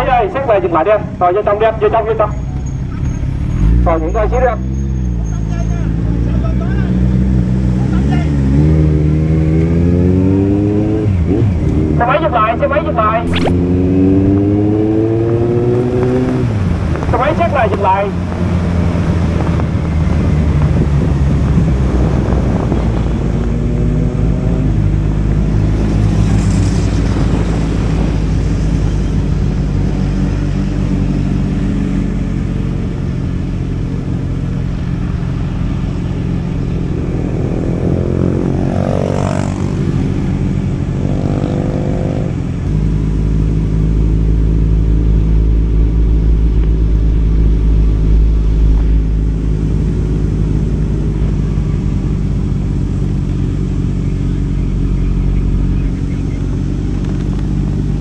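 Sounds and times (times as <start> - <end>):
motorcycle engine running: 30.8 - 58.0.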